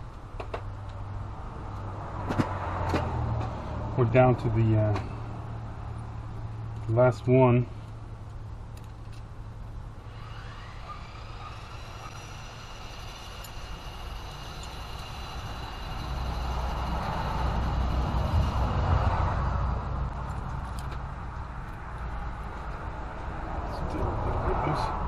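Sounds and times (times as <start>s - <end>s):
engine humming: 0.0s - 25.0s
motor whine: 10.0s - 19.0s
low rumble: 13.6s - 24.4s.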